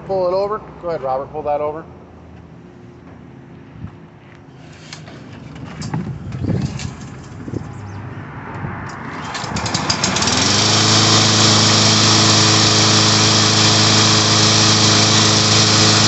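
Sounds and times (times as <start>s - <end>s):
recoil starter pull: 8.9s - 16.0s
lawn mower engine running: 9.0s - 16.0s.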